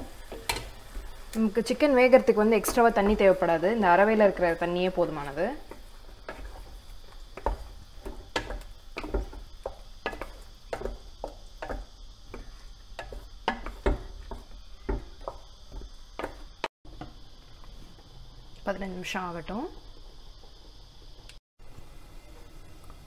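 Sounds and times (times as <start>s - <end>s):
wooden spatula scraping a pot: 0.0s - 16.6s.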